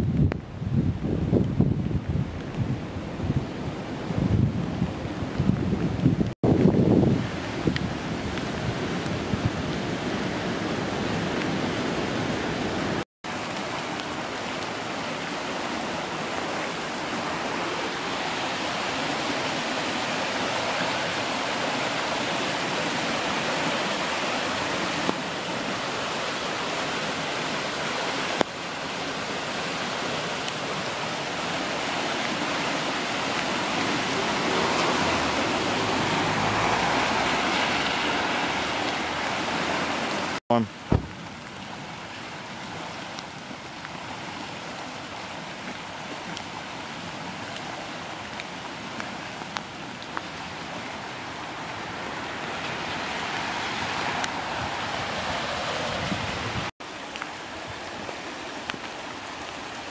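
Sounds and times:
floodwater rushing: 2.2s - 59.9s.

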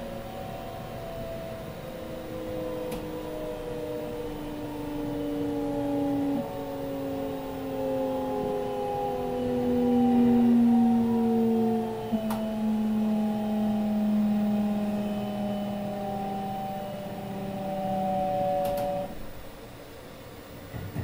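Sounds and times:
inverter motor tones falling in pitch: 0.0s - 19.4s
sharp clicks: 18.6s - 18.9s
train running rumble: 20.5s - 21.0s.

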